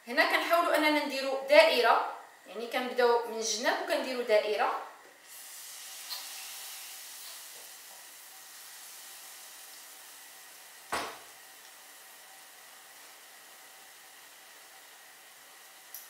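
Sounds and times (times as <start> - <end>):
batter sizzling in hot oil: 5.2 - 16.0
sharp knock: 10.9 - 11.2.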